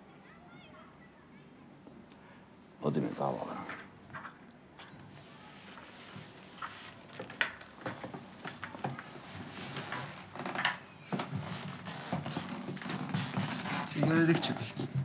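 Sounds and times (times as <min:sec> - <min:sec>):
clothes and seats rustling: 0:05.0 - 0:15.0.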